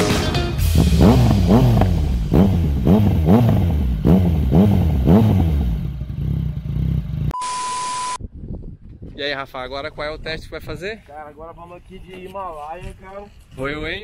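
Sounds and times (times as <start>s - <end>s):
motorcycle engine revving: 0.6s - 7.3s.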